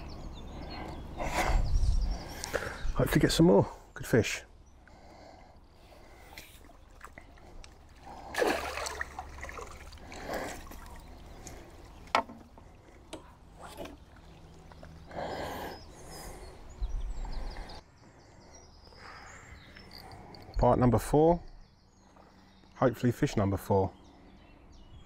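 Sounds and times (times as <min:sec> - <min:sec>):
lake water splashing: 0:06.0 - 0:16.6.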